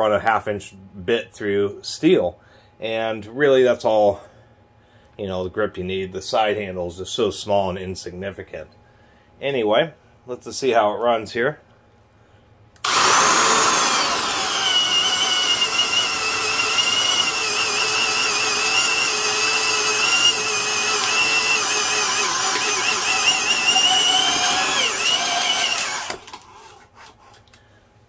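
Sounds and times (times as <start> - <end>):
drill boring into wood: 12.8 - 26.5.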